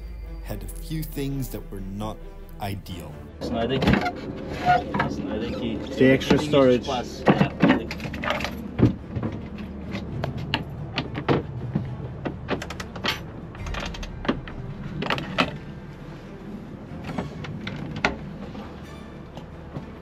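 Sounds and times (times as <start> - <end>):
steady low rumble: 0.0 - 3.4, 7.9 - 17.7.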